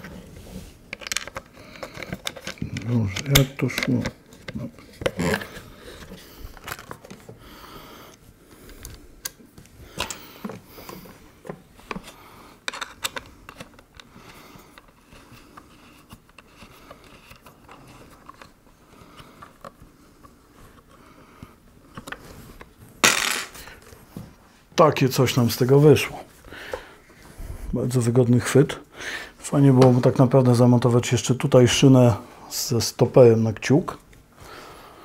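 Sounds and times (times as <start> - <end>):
plastic clicks and rattles: 0.9 - 5.5, 11.4 - 14.1.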